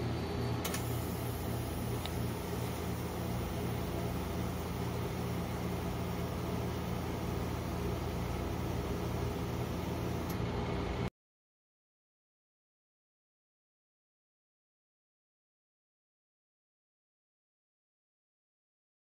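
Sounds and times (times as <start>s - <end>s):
refrigeration machine humming: 0.0s - 11.1s.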